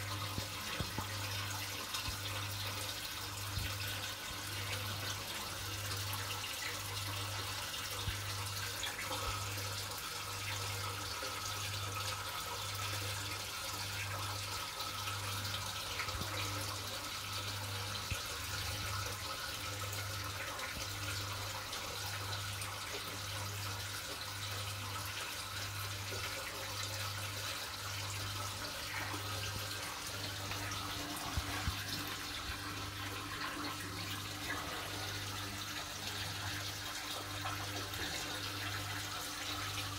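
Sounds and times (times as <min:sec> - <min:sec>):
aquarium water bubbling: 0:00.0 - 0:39.9
pump low hum: 0:00.0 - 0:39.9.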